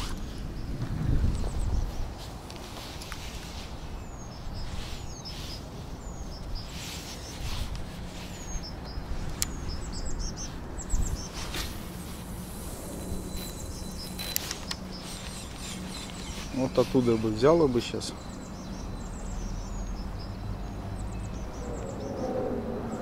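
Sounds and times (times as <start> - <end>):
small birds chirping: 0.0 - 23.0.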